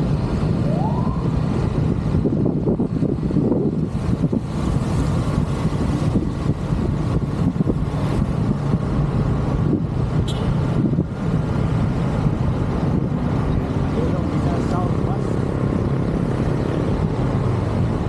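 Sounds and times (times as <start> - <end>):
vehicle road and engine noise: 0.0 - 18.0.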